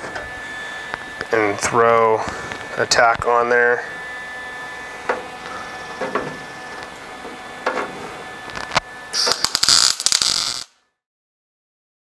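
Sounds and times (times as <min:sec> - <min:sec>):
welder arc crackling: 0:02.1 - 0:10.7.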